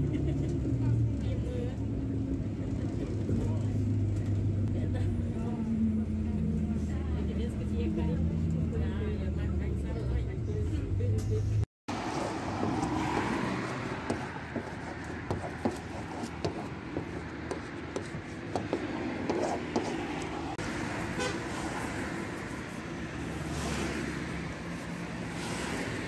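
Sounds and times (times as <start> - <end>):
street traffic: 0.0 - 26.0
car horn tooting: 21.1 - 21.6.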